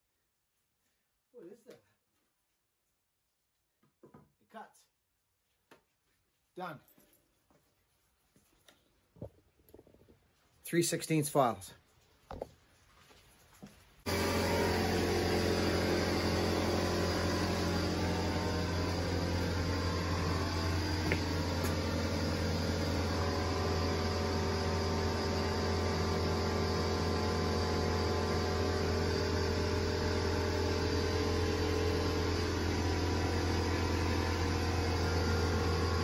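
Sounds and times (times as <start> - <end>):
steady low hum: 14.1 - 36.0.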